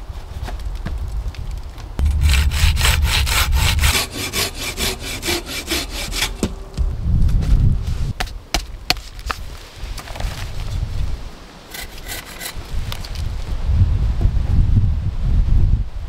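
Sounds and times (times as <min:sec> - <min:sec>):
hand saw cutting wood: 0:02.0 - 0:06.6, 0:11.7 - 0:12.6.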